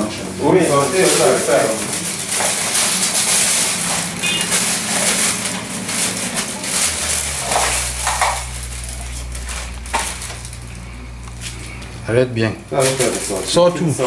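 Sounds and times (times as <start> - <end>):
plastic bag rustling: 0.4 - 14.0
low steady hum: 3.6 - 13.5.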